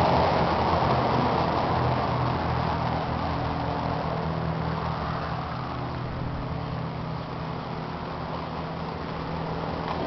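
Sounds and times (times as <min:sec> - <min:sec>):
grain mill machine hum: 0:00.0 - 0:10.0.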